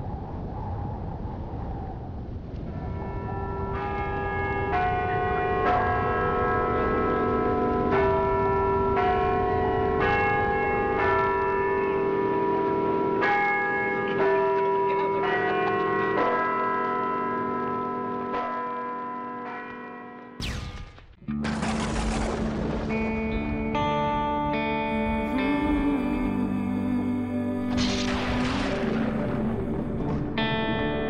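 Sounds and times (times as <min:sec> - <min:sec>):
peal of bells ringing: 0:02.7 - 0:20.4
low rumble: 0:20.4 - 0:31.0.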